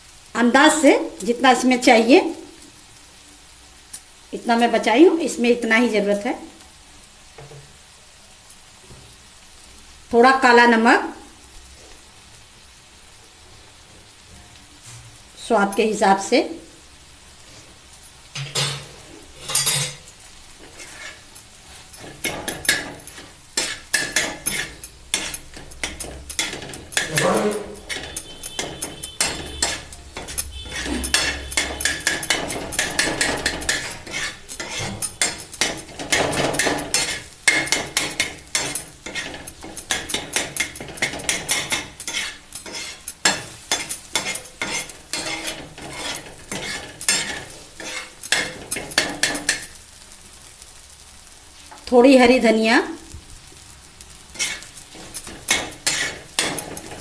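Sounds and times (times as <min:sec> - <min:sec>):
metal spatula tapping on a griddle: 0:18.4 - 0:18.9, 0:22.0 - 0:49.8, 0:54.4 - 0:57.0.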